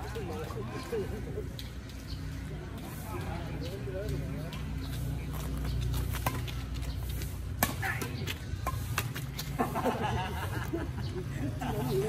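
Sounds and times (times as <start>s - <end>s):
low city hum: 0.0s - 12.0s
shuttlecock struck by rackets: 7.2s - 9.8s.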